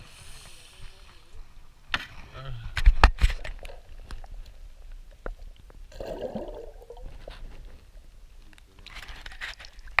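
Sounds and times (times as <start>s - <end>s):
water splashing: 5.4s - 7.5s.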